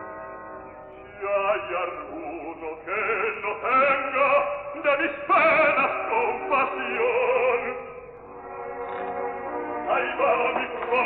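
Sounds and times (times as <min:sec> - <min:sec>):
operatic baritone singing: 0:01.1 - 0:08.1, 0:09.8 - 0:11.0
orchestral accompaniment: 0:05.6 - 0:11.0.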